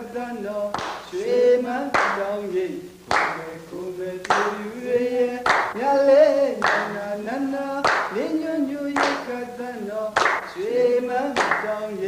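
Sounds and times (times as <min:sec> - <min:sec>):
unaccompanied singing voices: 0:00.0 - 0:12.0
sharp clap: 0:00.7 - 0:02.2, 0:03.1 - 0:03.5, 0:04.2 - 0:04.6, 0:05.4 - 0:05.8, 0:06.6 - 0:07.0, 0:07.8 - 0:08.3, 0:08.9 - 0:09.4, 0:10.2 - 0:11.8.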